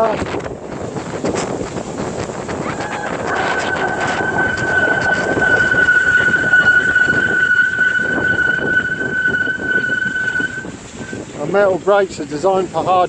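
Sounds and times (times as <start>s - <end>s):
tyres rumbling on snow: 0.0s - 13.0s
wind: 0.0s - 13.0s
brakes squealing: 2.4s - 11.3s.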